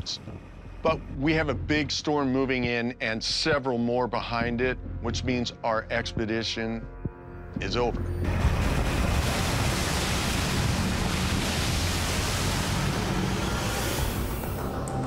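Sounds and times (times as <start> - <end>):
low rumble: 7.7 - 14.9
rough sea: 8.3 - 14.4
boat wake churning: 8.3 - 14.7.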